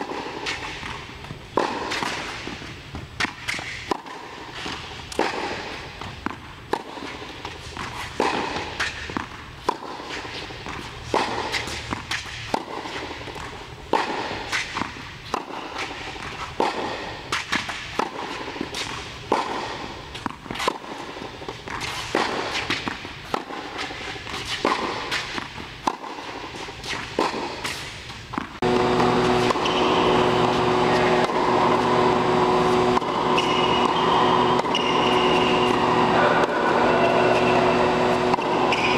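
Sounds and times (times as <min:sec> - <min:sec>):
racket hitting tennis balls: 0:00.0 - 0:38.9
tennis balls bouncing on court: 0:00.0 - 0:38.9
steady hum with held tones: 0:28.6 - 0:38.9.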